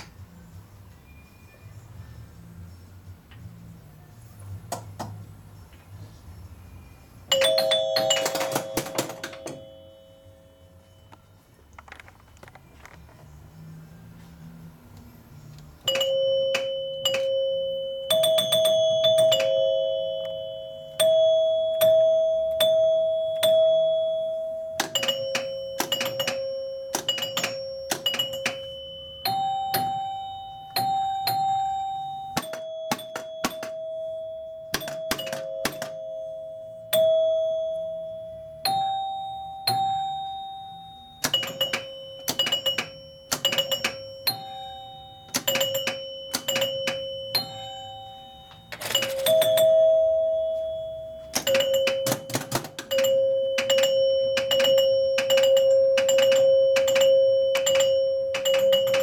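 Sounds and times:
pinball scoring chimes: 7.3 - 10.0, 15.8 - 59.0
pinball mechanism clicks: 7.9 - 9.7, 24.8 - 33.8, 34.7 - 36.0, 41.1 - 49.7, 51.3 - 59.0.

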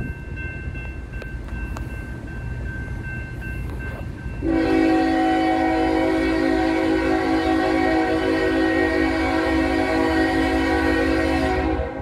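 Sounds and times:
railroad crossing bell ringing: 0.0 - 12.0
locomotive air horn: 4.4 - 12.0.

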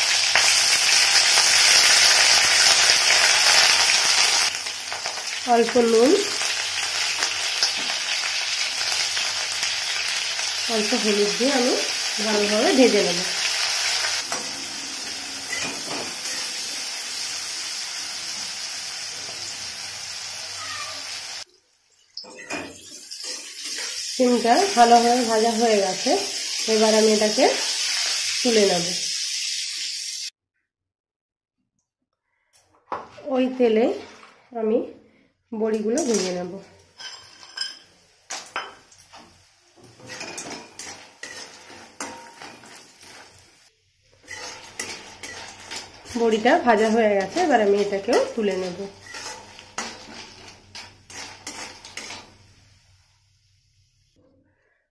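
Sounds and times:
beans sizzling in oil: 0.0 - 30.3, 35.8 - 54.2
metal spatula scraping a pan: 8.8 - 21.4, 22.4 - 25.7, 35.7 - 52.7.

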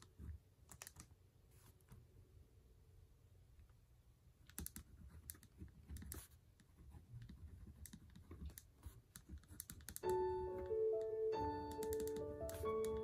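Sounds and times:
piano music: 10.0 - 13.0.

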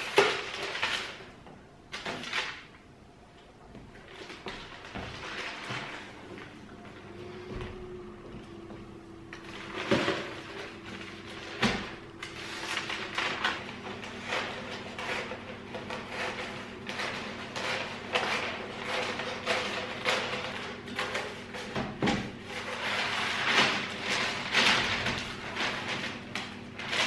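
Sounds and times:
wrapping paper rustling: 0.0 - 2.8, 3.9 - 7.4, 9.2 - 27.0
scissors cutting paper: 9.7 - 21.8.

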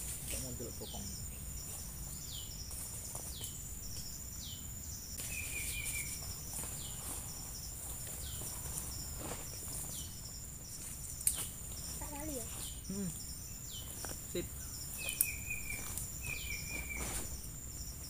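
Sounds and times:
insects droning: 0.0 - 18.0
bird trill: 5.2 - 7.1, 11.3 - 18.0.

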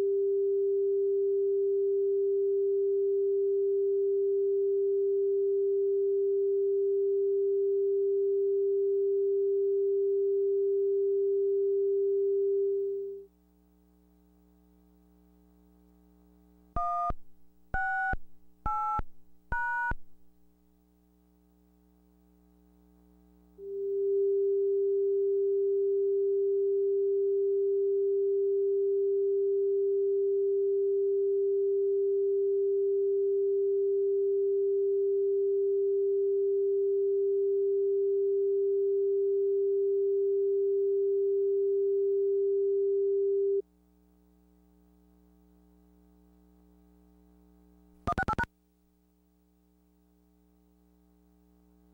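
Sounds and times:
broadcast test tone: 48.1 - 48.5.

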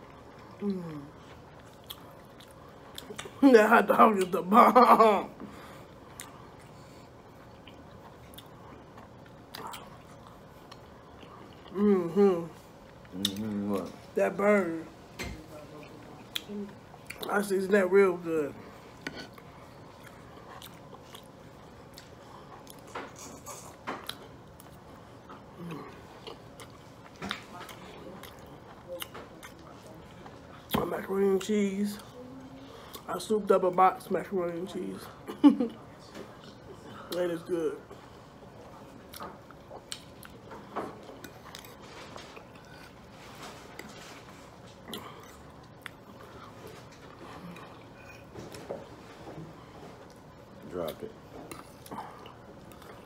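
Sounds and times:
person chewing and lip-smacking: 0.0 - 3.4, 7.4 - 12.2, 12.9 - 13.9, 15.8 - 17.4, 19.0 - 29.7, 38.7 - 43.0, 50.0 - 53.0.

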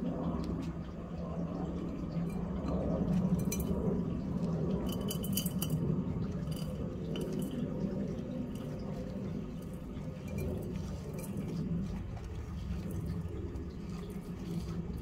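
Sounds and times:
steady low hum: 0.0 - 15.0
soil pattering on glass: 4.8 - 12.0.

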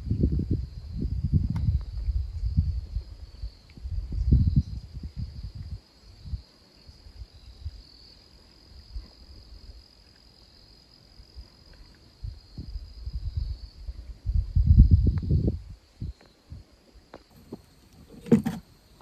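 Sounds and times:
wind buffeting microphone: 0.0 - 7.8, 12.2 - 16.7
crickets trilling: 0.0 - 19.0.

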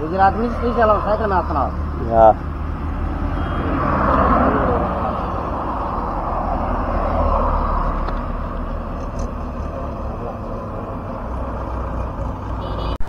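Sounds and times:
rushing wind: 0.0 - 10.0
road noise from bicycle: 0.0 - 13.0.

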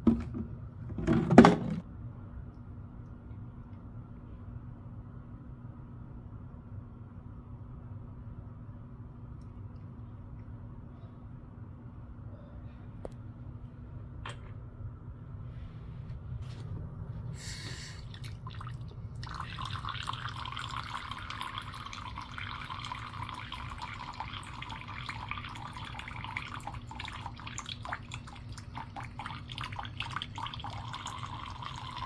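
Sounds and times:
faucet water running into sink: 18.0 - 32.0
small splashes and drips: 18.0 - 32.0.

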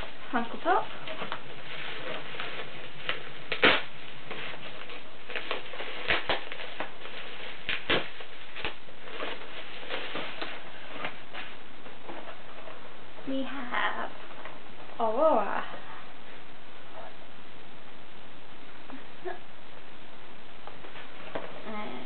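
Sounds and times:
plastic packaging crinkling: 0.0 - 12.9.

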